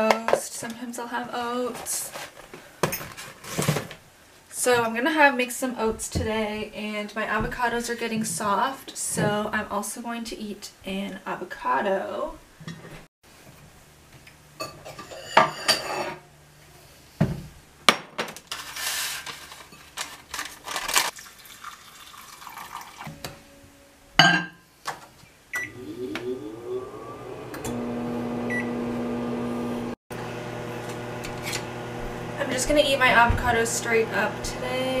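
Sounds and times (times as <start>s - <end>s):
water pouring into a bowl: 21.1s - 23.1s
microwave oven humming: 25.5s - 35.0s.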